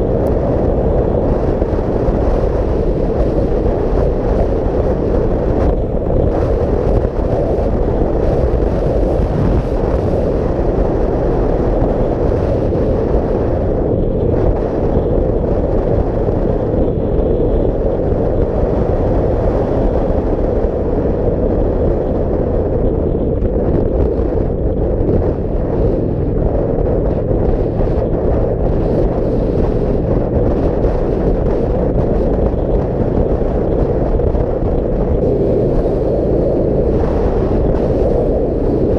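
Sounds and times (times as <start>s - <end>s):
motorcycle engine droning: 0.0s - 38.9s
wind buffeting microphone: 0.0s - 38.9s.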